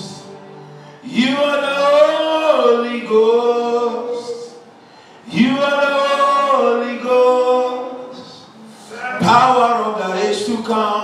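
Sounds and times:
man singing a chant: 0:05.3 - 0:11.0.

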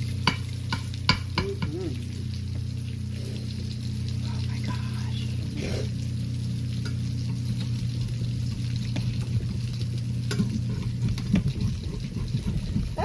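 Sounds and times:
pancakes sizzling in hot oil: 0:00.0 - 0:13.0
steady low hum: 0:00.0 - 0:13.0
spatula scraping a pan: 0:10.3 - 0:13.0.

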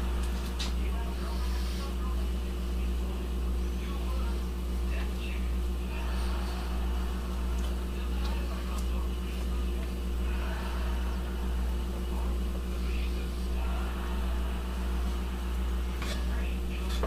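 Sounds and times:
low electrical hum: 0:00.0 - 0:17.0
wooden spoon scraping pot: 0:15.9 - 0:17.0.

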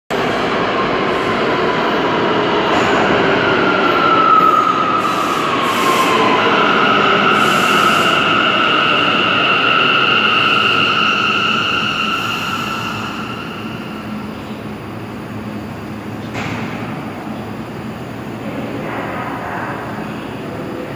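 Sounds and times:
subway train braking: 0:00.1 - 0:20.9
high brake squeal: 0:04.4 - 0:14.1.

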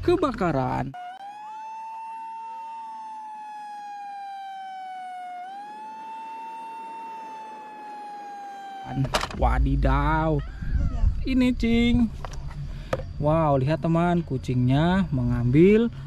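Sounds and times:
emergency vehicle siren: 0:00.9 - 0:10.9
faint sweeping siren: 0:00.9 - 0:11.6.

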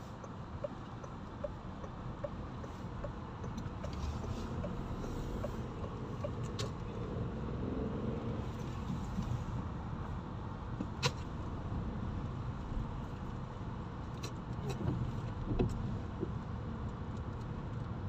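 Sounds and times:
turn signal ticking: 0:00.0 - 0:07.2
car engine and tyre rumble: 0:00.0 - 0:18.0.

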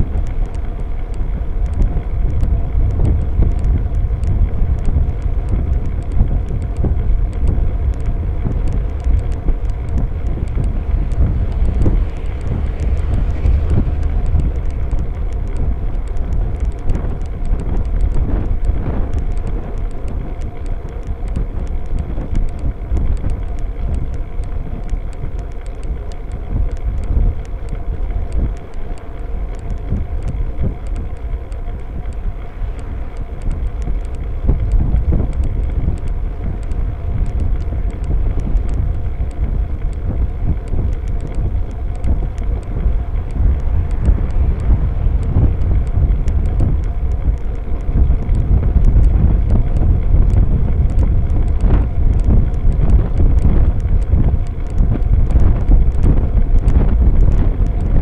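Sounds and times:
tyres rumbling on tarmac: 0:00.0 - 0:58.0
wind buffeting microphone: 0:00.0 - 0:58.0
car passing: 0:10.0 - 0:16.6, 0:31.8 - 0:34.5, 0:41.8 - 0:48.0.

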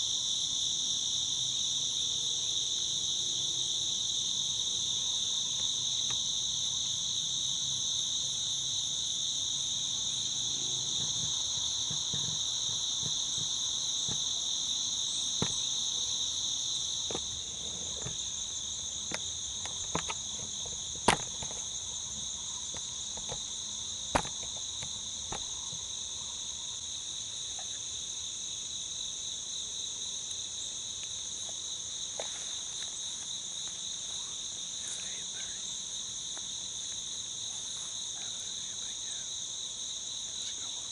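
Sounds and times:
woodland insects shrilling: 0:00.0 - 0:40.9
sharp clicks and knocks: 0:19.1 - 0:21.7, 0:24.1 - 0:25.8.

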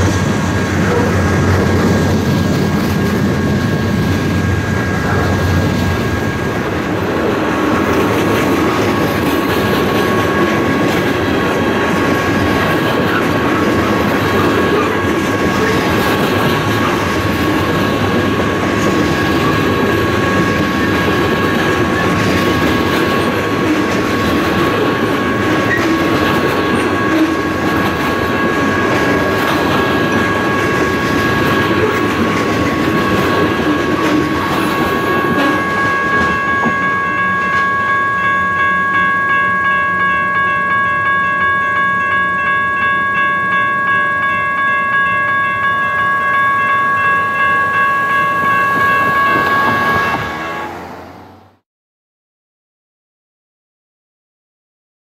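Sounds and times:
crossing signal bell ringing: 0:00.0 - 0:51.4.

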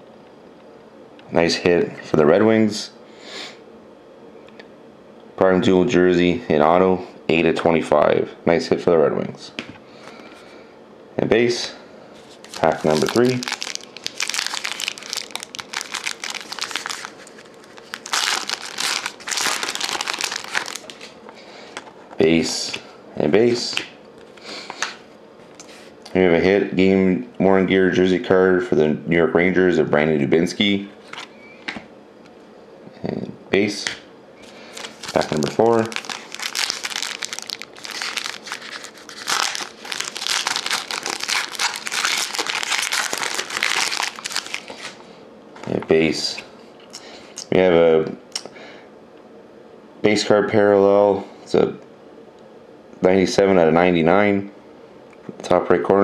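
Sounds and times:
foil wrapper crinkling: 0:12.4 - 0:21.2, 0:34.4 - 0:45.0.

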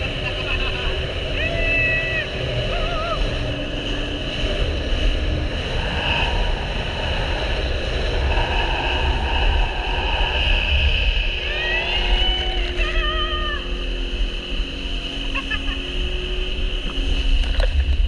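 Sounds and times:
jet ski engine drone: 0:00.0 - 0:18.0
wind buffeting the microphone: 0:00.0 - 0:18.0
person calling out: 0:11.5 - 0:13.8.

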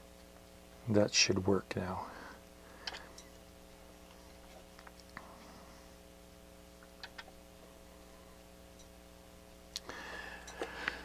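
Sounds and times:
rotary control clicks: 0:06.8 - 0:07.4.

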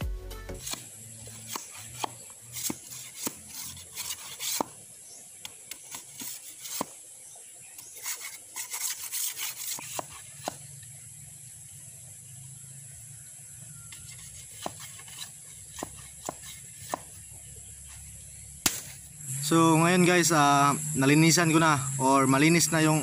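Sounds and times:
knife scraping bamboo: 0:00.5 - 0:07.0, 0:07.7 - 0:10.8, 0:13.8 - 0:19.1.

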